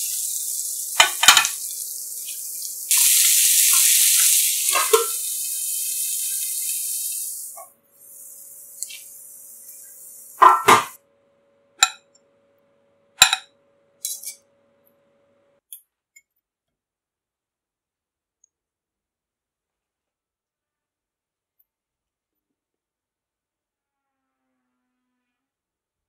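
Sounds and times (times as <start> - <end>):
food sizzling in a frying pan: 0.0 - 11.0
metal tongs clinking on a plate: 14.0 - 14.4.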